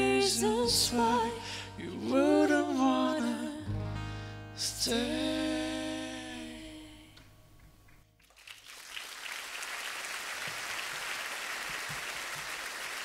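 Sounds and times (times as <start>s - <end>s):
audience applause: 8.2s - 13.0s.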